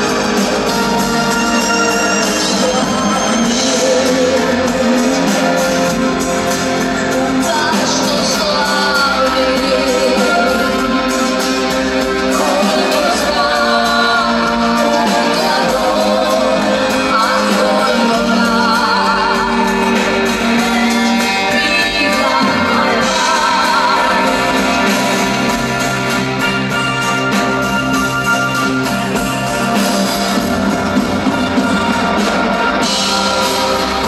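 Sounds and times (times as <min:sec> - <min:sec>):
woman singing: 0:00.0 - 0:25.9
live band with bass guitar: 0:00.0 - 0:34.0.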